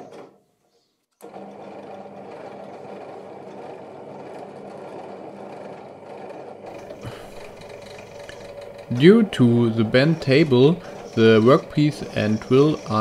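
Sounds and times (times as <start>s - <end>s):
drill press motor humming: 1.2s - 13.0s
drill bit cutting steel tube: 6.7s - 13.0s.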